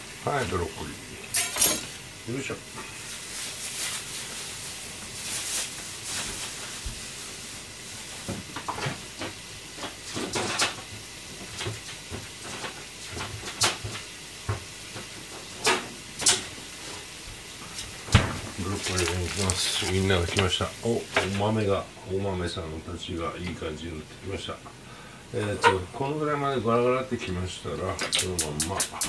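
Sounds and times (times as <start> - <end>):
water boiling hiss: 0.0 - 25.6.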